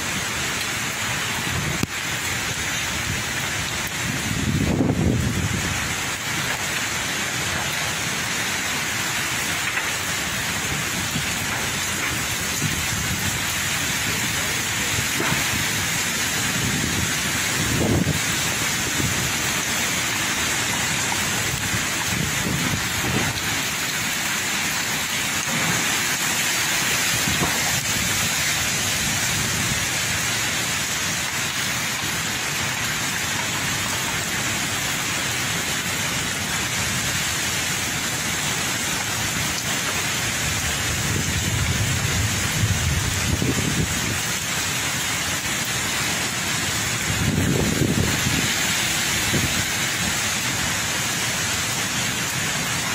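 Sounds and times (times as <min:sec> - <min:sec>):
heavy rain pouring: 0:00.0 - 0:52.9
wind gusts buffeting microphone: 0:03.8 - 0:06.0, 0:10.6 - 0:19.8, 0:21.0 - 0:23.6, 0:41.0 - 0:44.2, 0:47.0 - 0:50.1.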